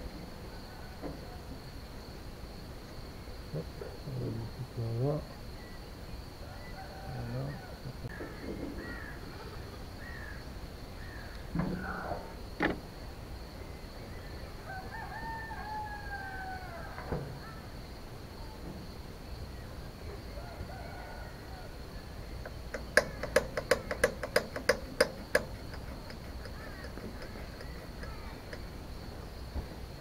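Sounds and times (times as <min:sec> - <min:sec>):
rooster crowing: 0:06.4 - 0:08.2, 0:14.6 - 0:17.3, 0:20.2 - 0:22.1
rapid sharp clicks: 0:22.4 - 0:28.7.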